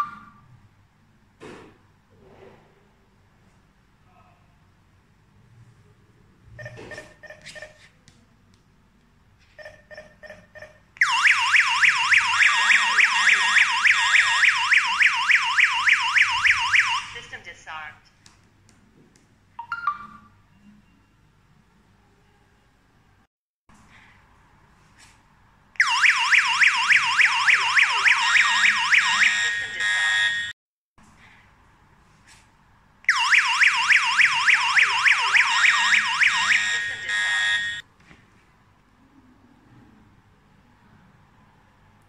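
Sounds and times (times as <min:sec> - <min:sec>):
alarm siren yelping: 0:10.3 - 0:17.2, 0:25.8 - 0:30.5, 0:33.1 - 0:37.8.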